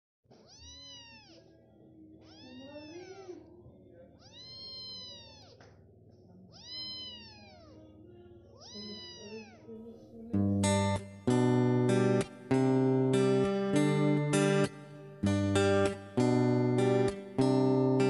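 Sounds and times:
kitten mewing: 0.4 - 1.5, 2.2 - 3.4, 4.2 - 5.7, 6.5 - 7.9, 8.6 - 9.6.

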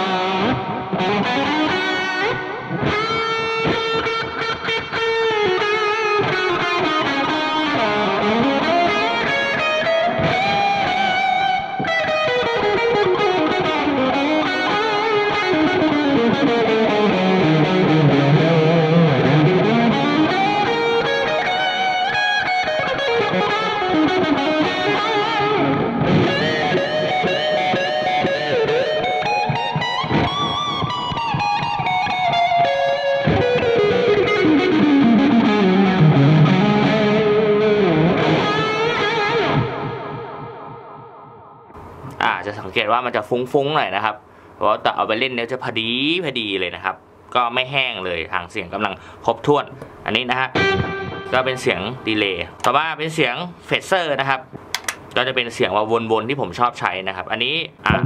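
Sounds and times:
electric guitar solo with delay: 0.0 - 41.8, 50.4 - 52.1.

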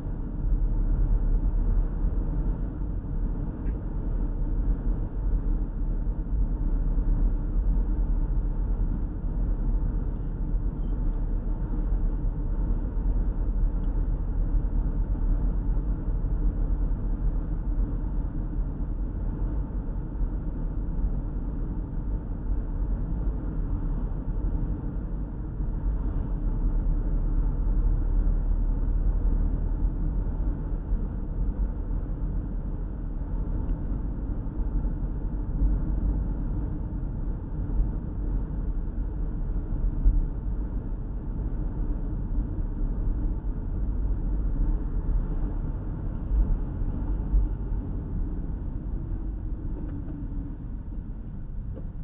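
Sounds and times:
car road and engine rumble: 0.0 - 52.0.

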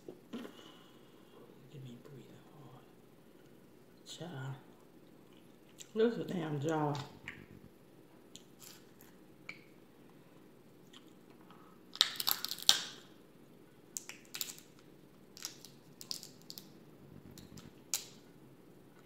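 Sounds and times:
crab shells cracking: 11.9 - 13.2, 13.9 - 16.8, 17.4 - 18.2.

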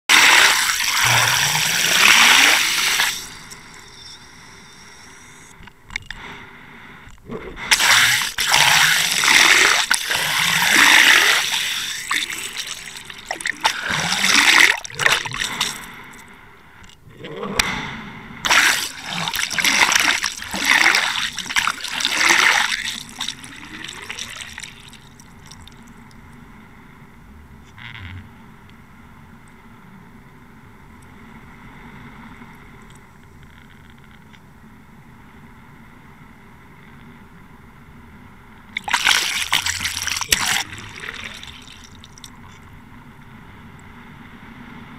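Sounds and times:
water rushing and splashing: 0.0 - 5.6, 7.6 - 16.3, 17.6 - 26.2, 38.8 - 42.6.

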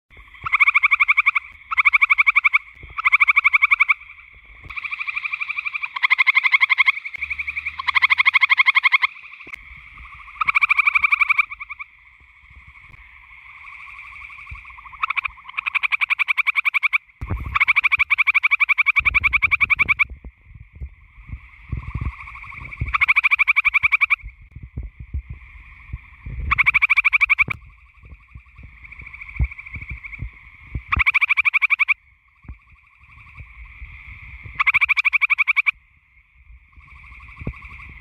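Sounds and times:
treefrogs trilling: 0.1 - 38.0
low rumble: 24.2 - 26.8.

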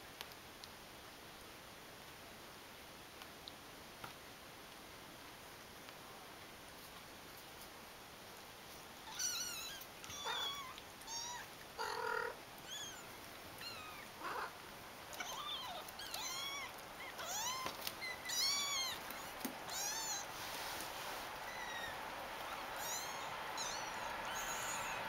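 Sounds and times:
lower meows: 9.1 - 14.5, 15.2 - 20.3, 21.5 - 25.0
kittens mewing: 9.1 - 20.4, 21.4 - 25.0.

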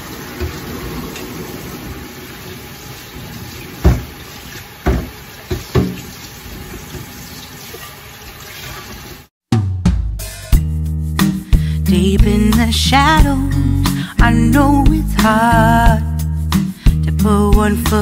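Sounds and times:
sharp knocks: 3.8 - 4.1, 4.8 - 6.1.

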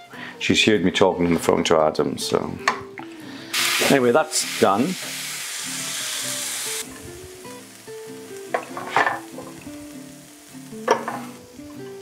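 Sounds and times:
light background music: 0.0 - 12.0
food sizzling in a frying pan: 3.4 - 12.0.

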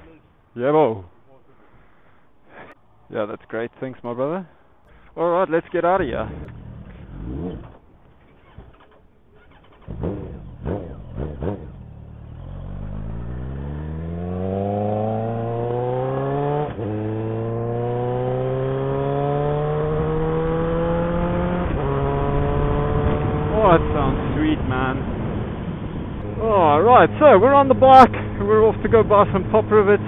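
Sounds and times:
loud motorcycle engine revving: 6.0 - 25.6.

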